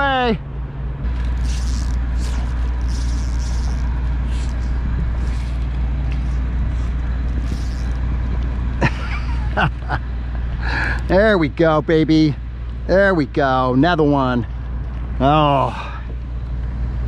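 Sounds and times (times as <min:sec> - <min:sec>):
wind buffeting microphone: 0:01.4 - 0:08.7.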